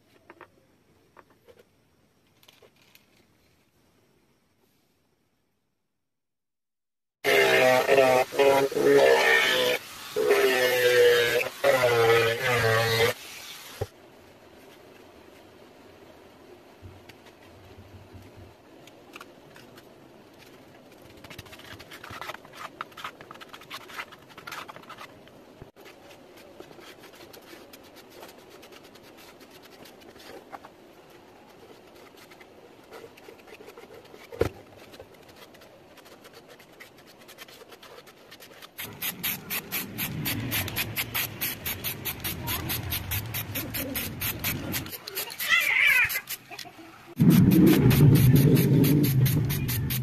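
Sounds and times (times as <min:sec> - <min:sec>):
pulsing spray paint hiss: 0:07.2 - 0:13.9, 0:38.8 - 0:50.0.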